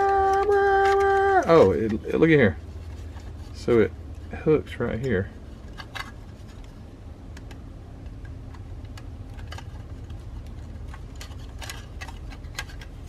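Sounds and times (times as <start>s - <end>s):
plastic parts clicking together: 0.0s - 2.2s, 5.6s - 13.0s
steady low rumble: 0.0s - 13.0s.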